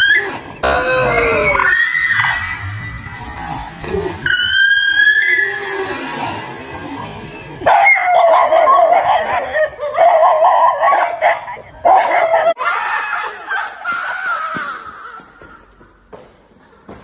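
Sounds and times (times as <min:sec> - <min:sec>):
dog barking and yelping: 0:07.6 - 0:12.6.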